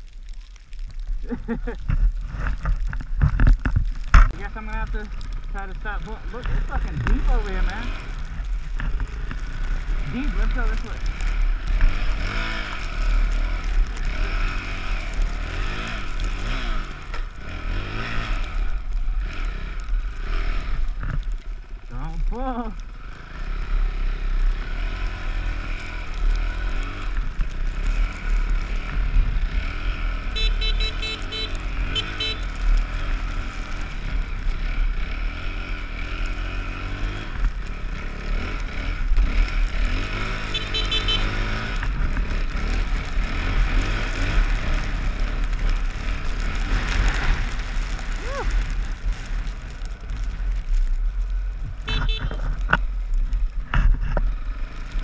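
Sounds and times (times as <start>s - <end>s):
steady low rumble: 0.0s - 55.0s
dirt bike engine revving: 6.3s - 21.1s, 22.5s - 49.8s.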